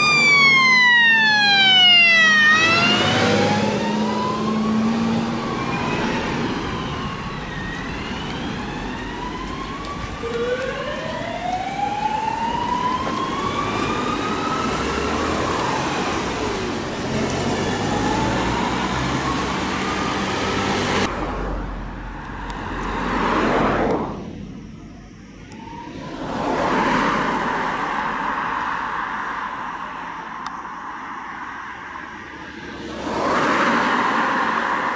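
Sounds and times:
fire engine sirens wailing: 0:00.0 - 0:21.1, 0:25.5 - 0:28.4
rushing road noise: 0:00.0 - 0:34.9.

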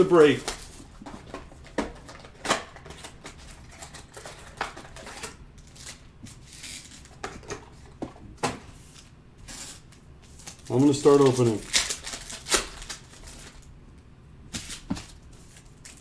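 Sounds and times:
plastic wrappers crinkling: 0:09.5 - 0:13.7, 0:14.6 - 0:16.0.

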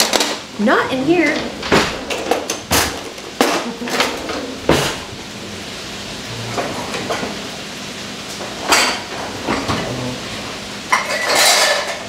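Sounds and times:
metal utensils clattering: 0:10.9 - 0:12.0.

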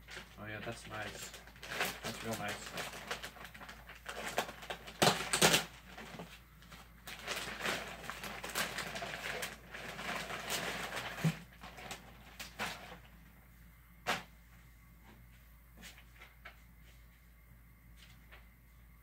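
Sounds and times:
plastic bag crinkling: 0:00.0 - 0:13.1.

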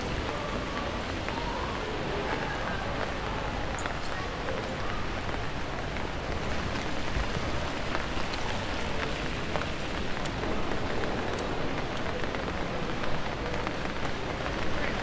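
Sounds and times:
steady rain hiss: 0:00.0 - 0:15.0
raindrop ticks: 0:03.7 - 0:15.0.

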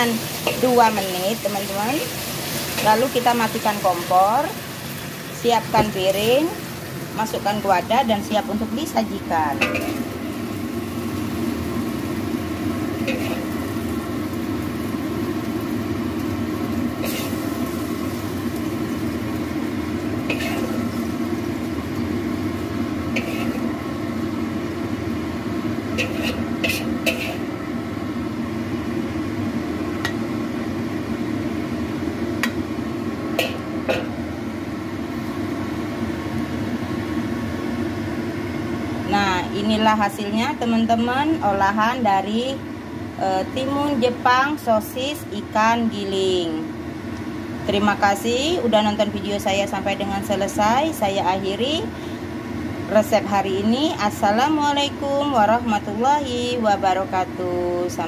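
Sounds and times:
steady hum: 0:00.0 - 0:58.0
metal spatula scraping a wok: 0:13.0 - 0:13.6, 0:17.0 - 0:17.4, 0:20.3 - 0:20.8, 0:23.2 - 0:23.7, 0:26.0 - 0:27.5.

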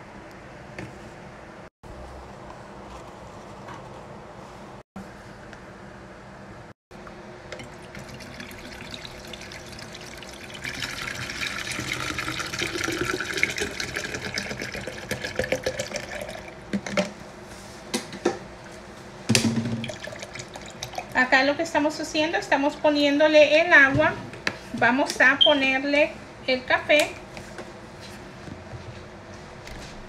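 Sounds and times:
water pouring into pitcher: 0:07.5 - 0:16.9, 0:19.7 - 0:21.3.

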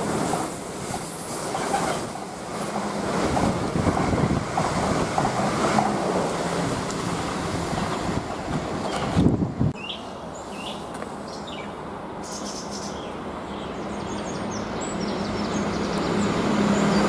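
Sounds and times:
freight train clattering past: 0:00.0 - 0:09.7
wind on microphone: 0:03.1 - 0:05.9, 0:07.4 - 0:09.8.

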